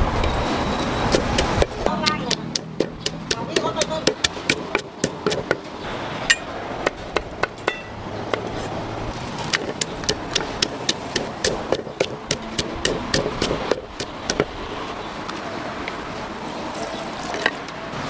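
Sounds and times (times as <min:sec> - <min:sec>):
blade chopping coconuts: 0:01.1 - 0:05.7, 0:09.4 - 0:14.5.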